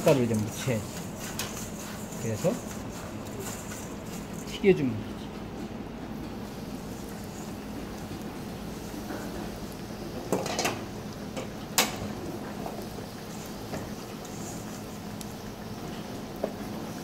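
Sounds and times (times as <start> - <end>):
eggplant deep-frying sizzle: 6.4 - 17.0.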